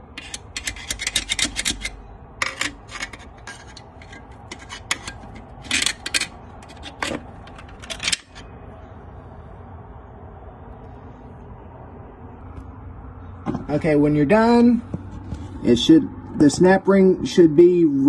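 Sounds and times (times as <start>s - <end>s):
screwdriver scraping metal: 0.0s - 8.4s.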